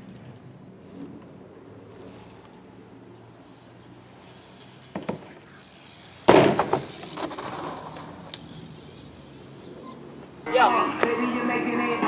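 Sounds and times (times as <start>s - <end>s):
bike rattling rolling: 0.0s - 12.0s
bike impact bang with rattle: 4.9s - 5.4s, 6.2s - 7.7s.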